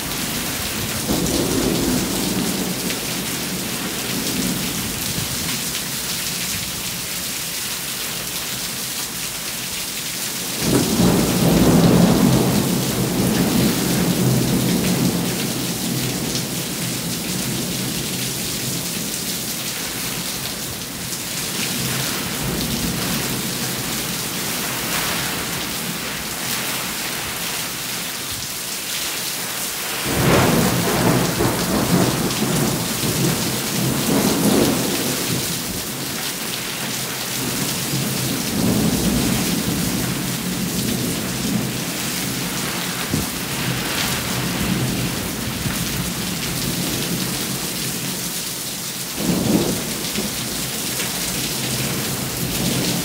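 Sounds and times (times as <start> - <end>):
thunder rumbling: 0.0 - 5.5, 10.6 - 17.7, 30.1 - 36.1, 37.8 - 47.3
steady rain: 0.0 - 53.0.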